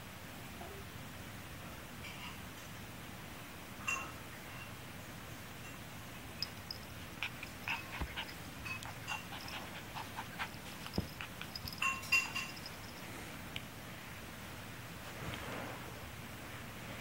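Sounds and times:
puppy yipping and squealing: 7.1 - 12.8
soft thumps: 7.9 - 8.4, 9.4 - 12.8.

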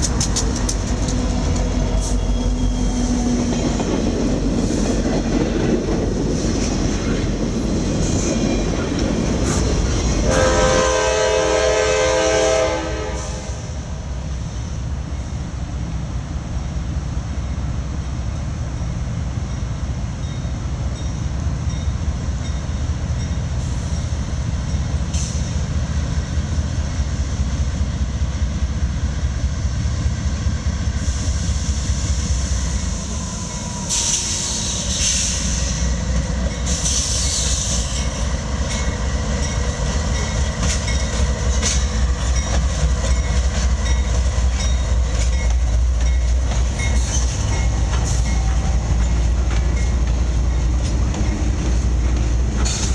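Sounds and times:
diesel locomotive engine drone: 0.0 - 52.9.

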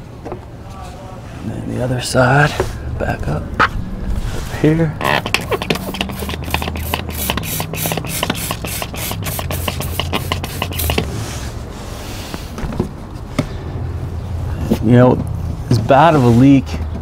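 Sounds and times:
spray bottle squirting: 5.0 - 11.1.

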